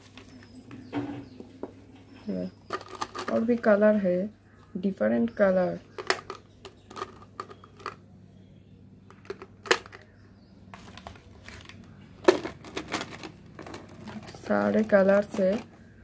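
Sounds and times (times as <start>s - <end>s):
plastic pens clattering in jar: 2.7s - 3.7s, 5.9s - 8.0s, 9.1s - 10.1s, 10.8s - 15.8s.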